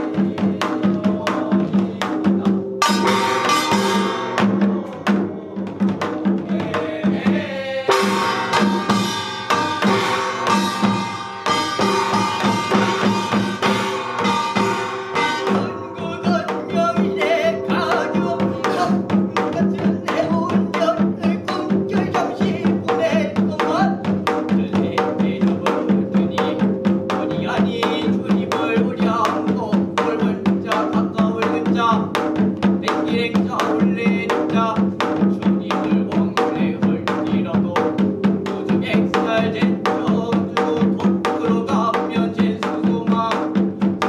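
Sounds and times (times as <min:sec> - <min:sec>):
person chanting: 0:00.0 - 0:05.9, 0:15.2 - 0:32.2, 0:32.8 - 0:43.6
quick drum beat: 0:00.0 - 0:44.0.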